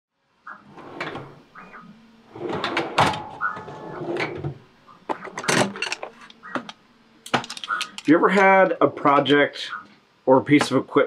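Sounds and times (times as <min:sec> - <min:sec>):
metal parts clattering in drawer: 0:05.3 - 0:06.4, 0:07.3 - 0:08.2.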